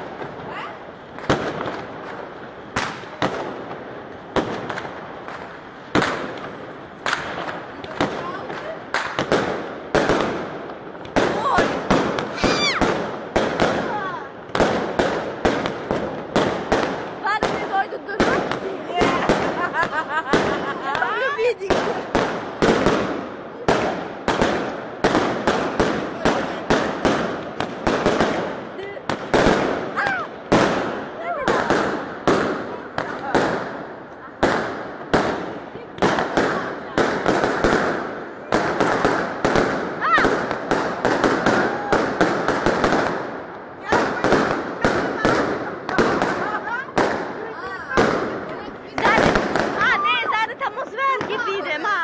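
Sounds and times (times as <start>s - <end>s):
fireworks bangs: 0.0s - 52.0s
fireworks crackle: 0.0s - 52.0s.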